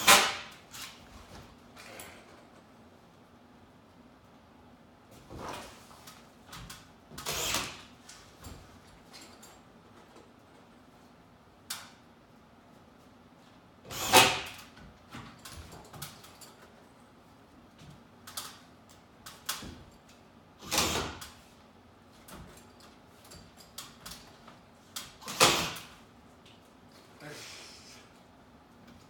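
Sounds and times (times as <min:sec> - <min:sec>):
drill driving screws: 0:07.2 - 0:07.8, 0:13.8 - 0:14.7, 0:20.6 - 0:21.3, 0:25.2 - 0:25.9.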